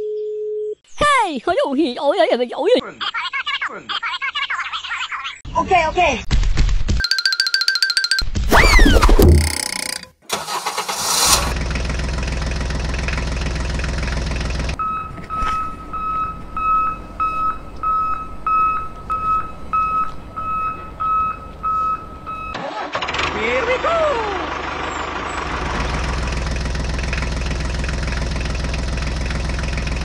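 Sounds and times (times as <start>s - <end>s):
high electronic beeps: 7.0s - 10.1s
sliding pitch sweep: 8.5s - 10.0s
toy tractor engine running: 9.4s - 11.6s.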